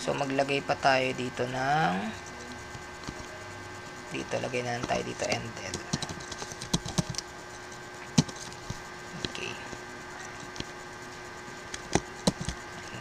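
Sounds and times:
faint electrical hum: 0.0 - 13.0
keyboard keystrokes: 4.8 - 7.2.

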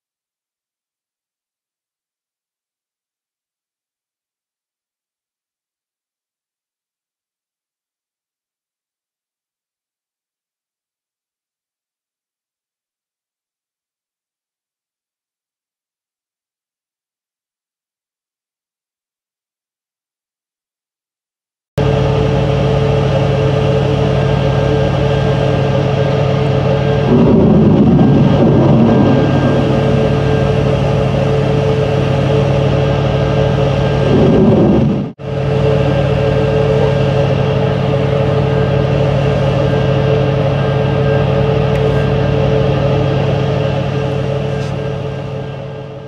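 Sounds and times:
loud machinery hum: 21.8 - 46.0
rumbling: 26.1 - 35.2.

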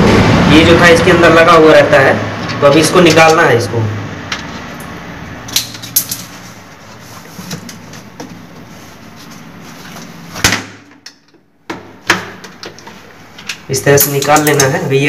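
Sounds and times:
plastic parts clicking and knocking: 10.9 - 14.8.

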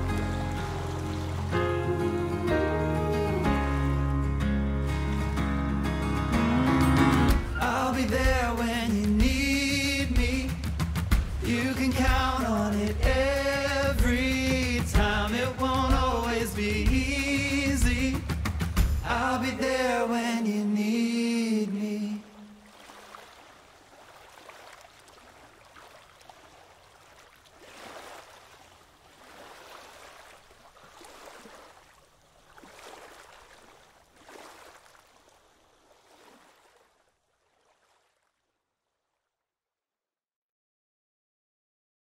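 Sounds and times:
waves lapping on sandy shore: 0.0 - 2.0, 21.1 - 38.3.

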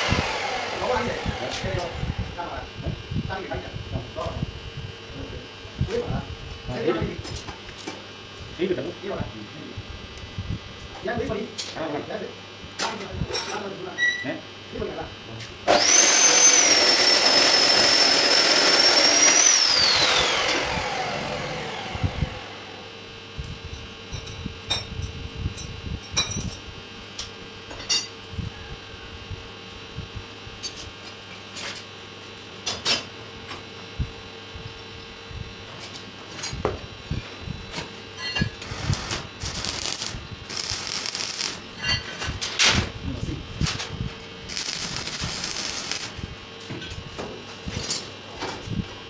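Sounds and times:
electric power tool whining: 0.0 - 2.4, 15.7 - 23.0, 38.4 - 42.0, 44.4 - 46.3.

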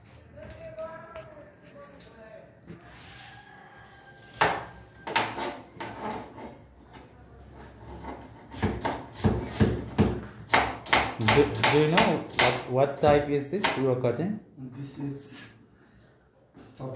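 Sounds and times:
knife chopping on plastic board: 8.6 - 13.8.

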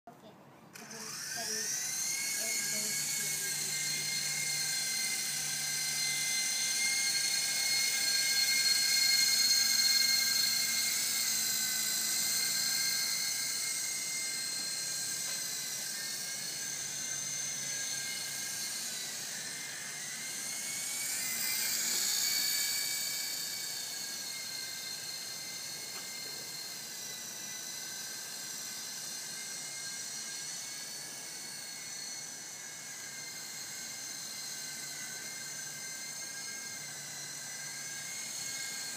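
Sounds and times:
toy helicopter whining: 0.7 - 38.9.

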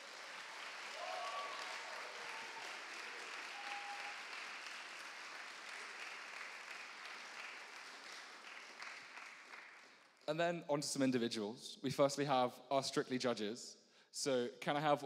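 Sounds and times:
audience applauding: 0.0 - 10.2
short cheers: 0.8 - 4.4.

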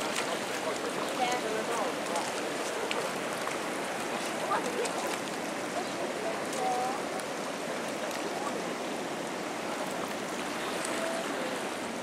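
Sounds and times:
river pouring over weir: 0.0 - 12.0.

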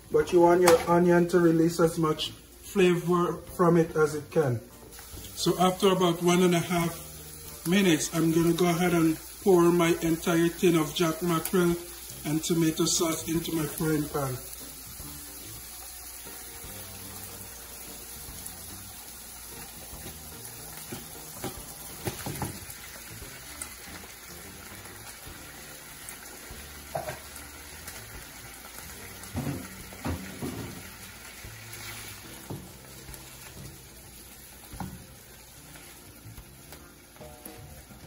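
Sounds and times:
vegetables sizzling in a frying pan: 0.0 - 38.0
spoon knocking and scraping pan: 26.9 - 27.3.

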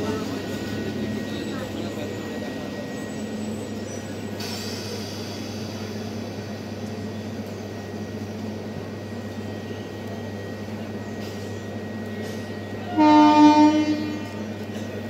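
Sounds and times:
train electrical hum: 0.0 - 15.0
train horn blast: 12.8 - 14.6.

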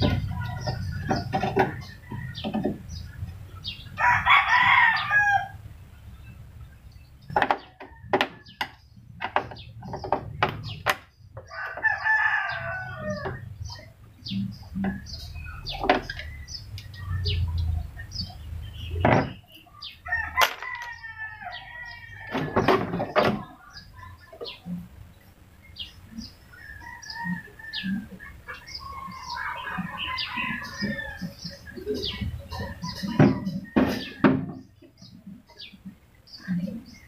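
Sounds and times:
bird calls: 0.0 - 37.0
rooster crowing: 4.0 - 5.6, 11.5 - 13.4, 20.0 - 22.6, 28.8 - 31.4.

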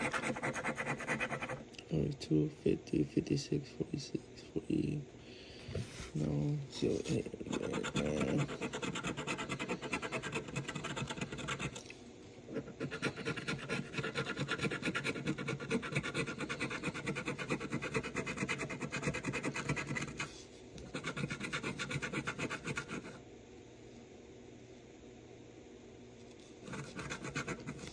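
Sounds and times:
scratching lottery ticket: 0.0 - 1.6, 7.0 - 11.8, 12.5 - 23.2, 26.6 - 27.9.

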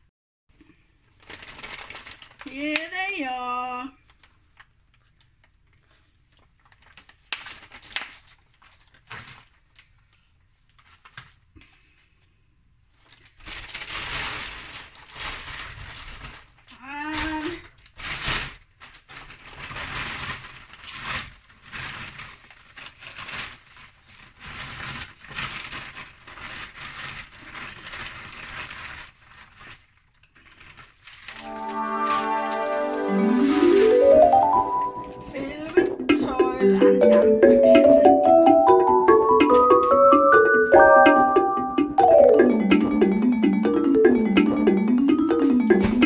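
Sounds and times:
plastic bag crinkling: 1.1 - 11.5, 13.0 - 16.8, 17.6 - 36.4.

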